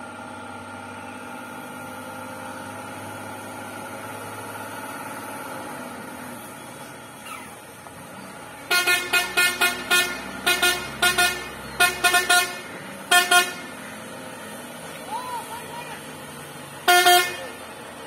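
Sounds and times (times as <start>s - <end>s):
truck engine running: 0.0s - 18.0s
truck horn short blasts: 8.7s - 13.8s, 16.8s - 17.6s.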